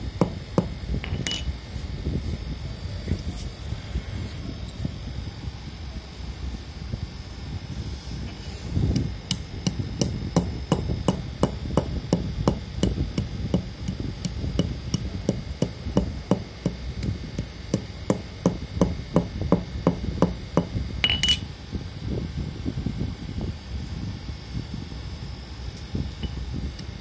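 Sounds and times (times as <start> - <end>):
bright metallic clink: 1.1 - 1.5, 21.0 - 21.5.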